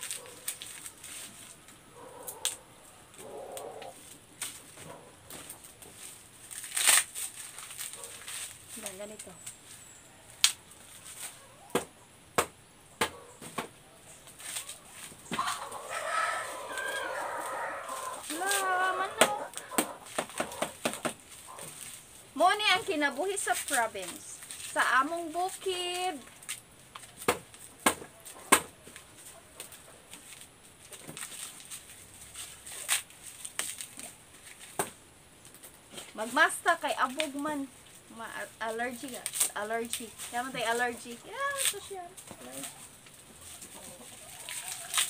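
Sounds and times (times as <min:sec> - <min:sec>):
dry husks rustling: 0:00.0 - 0:11.7, 0:13.2 - 0:45.0
dried corn being beaten: 0:14.3 - 0:34.7, 0:38.3 - 0:45.0
corn cobs knocking: 0:18.2 - 0:21.2.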